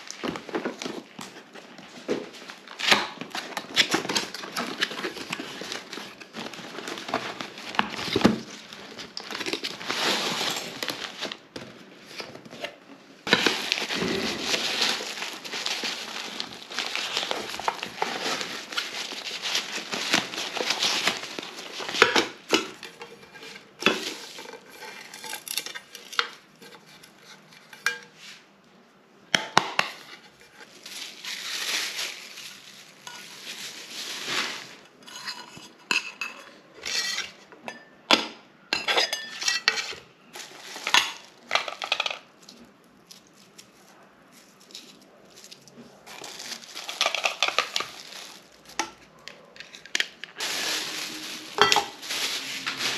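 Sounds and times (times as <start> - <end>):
metal pots clinking: 50.9 - 52.1.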